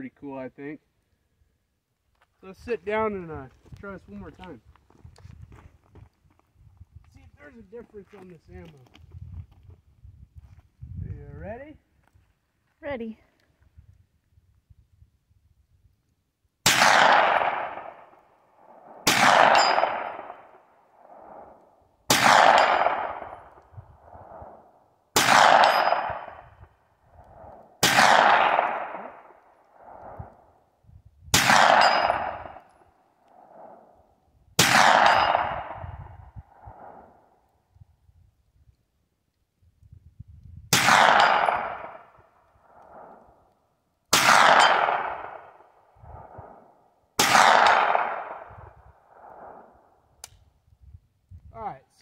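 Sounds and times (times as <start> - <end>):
gunshots with echo: 16.7 - 18.1, 18.7 - 21.5, 22.1 - 23.6, 25.2 - 26.6, 27.8 - 30.0, 31.3 - 32.7, 34.6 - 35.9, 40.7 - 42.1, 44.1 - 45.6, 47.2 - 48.6.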